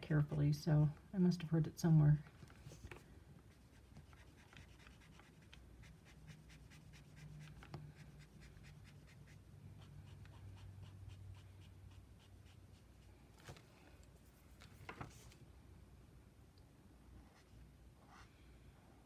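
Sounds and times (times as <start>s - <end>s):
felt pen scratching on paper: 3.5s - 13.0s.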